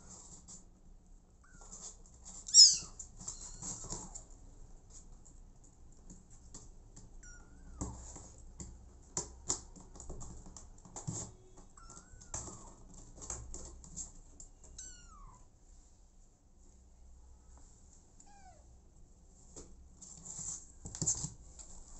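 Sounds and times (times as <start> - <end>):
soft clicks and rustles: 19.3 - 21.9.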